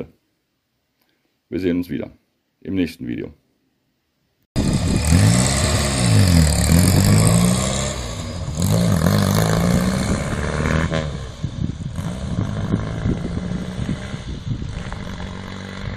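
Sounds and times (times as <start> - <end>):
car engine accelerating: 4.6 - 15.9.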